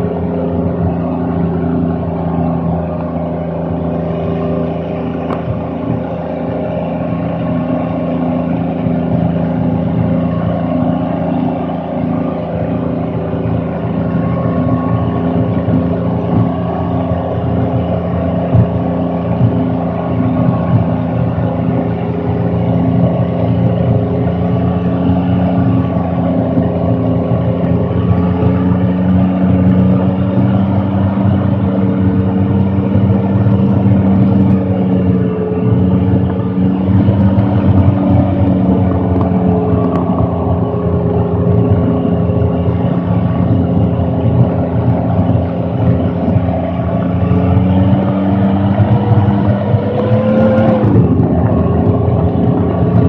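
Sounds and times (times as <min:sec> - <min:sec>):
diesel engine running: 0:00.0 - 0:53.0
track and hull rattle: 0:00.0 - 0:53.0.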